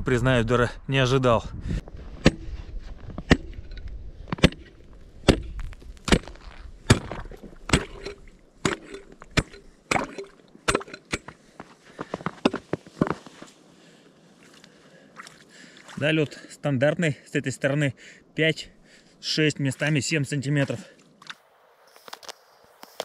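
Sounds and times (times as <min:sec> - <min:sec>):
ice chisel chopping ice: 0:04.4 - 0:11.4.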